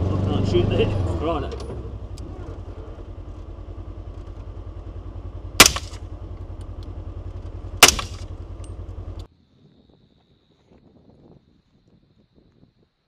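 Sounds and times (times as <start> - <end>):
engine idling: 1.7 - 9.3
rifle shots: 5.6 - 6.0, 7.8 - 8.3.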